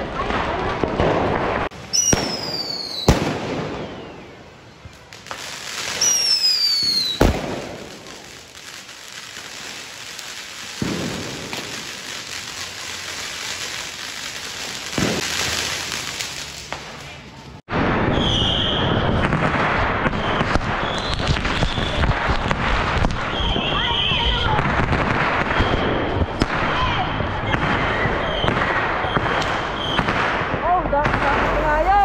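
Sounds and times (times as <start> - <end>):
whistling firecracker: 0.0 - 31.9
firework bangs: 0.0 - 32.0
fountain firework hissing: 1.6 - 17.5.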